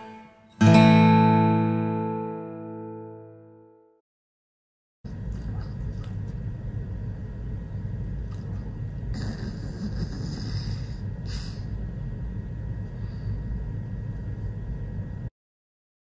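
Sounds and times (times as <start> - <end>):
low background rumble: 5.1 - 15.3.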